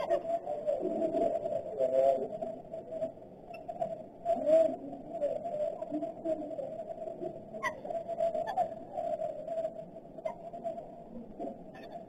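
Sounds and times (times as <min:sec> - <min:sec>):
dove cooing: 0:00.0 - 0:10.8
birds calling: 0:07.6 - 0:08.8.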